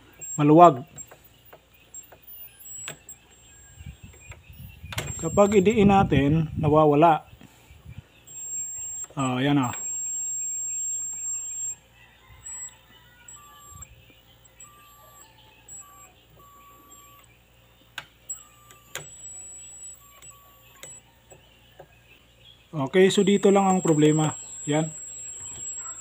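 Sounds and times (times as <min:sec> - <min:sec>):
sharp clicks: 0:00.2 - 0:05.8, 0:13.3 - 0:21.9, 0:22.8 - 0:26.0
high-pitched transformer whistle: 0:01.9 - 0:05.8, 0:08.3 - 0:11.8, 0:12.4 - 0:13.9, 0:14.5 - 0:17.3, 0:18.3 - 0:21.1, 0:23.2 - 0:26.0.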